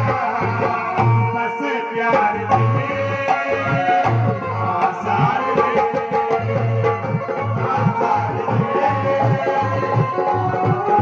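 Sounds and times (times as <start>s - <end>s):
man singing into a microphone: 0.0s - 11.0s
hand drum beat: 5.1s - 11.0s.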